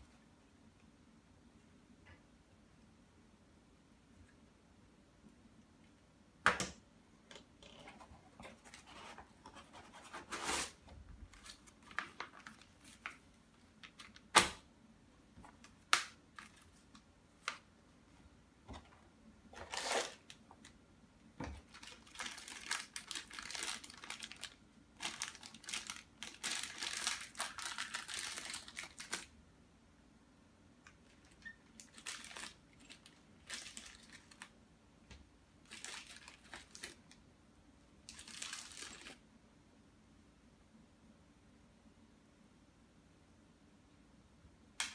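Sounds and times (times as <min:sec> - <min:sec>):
rustling and crinkling packaging: 0:07.8 - 0:14.4, 0:15.4 - 0:17.7, 0:18.7 - 0:20.8, 0:21.4 - 0:29.4, 0:31.0 - 0:34.6, 0:35.6 - 0:37.2, 0:38.0 - 0:39.2.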